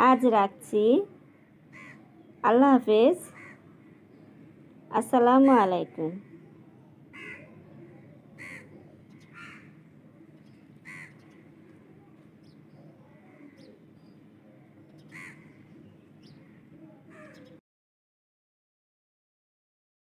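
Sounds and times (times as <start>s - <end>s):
low background noise: 0.0s - 17.6s
faint bird calls: 1.1s - 2.4s, 3.2s - 4.6s, 6.0s - 17.6s.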